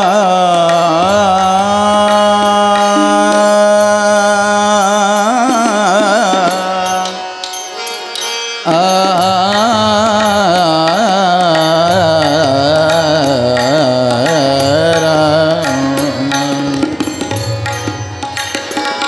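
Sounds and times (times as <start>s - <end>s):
man singing held note: 0.0s - 7.4s.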